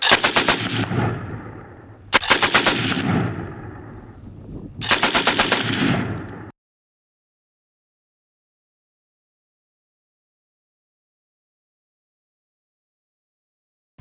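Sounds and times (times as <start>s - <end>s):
automatic gunfire bursts: 0.0s - 1.5s, 2.1s - 3.3s, 4.8s - 6.5s.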